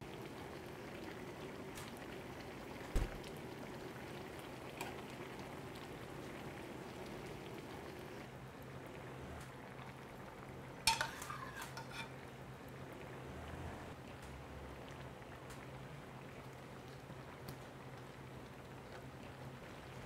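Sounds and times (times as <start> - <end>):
stew bubbling in a metal pan: 0.0 - 20.0
ladle stirring: 10.8 - 12.2
metal ladle clinking against dish: 10.9 - 12.1.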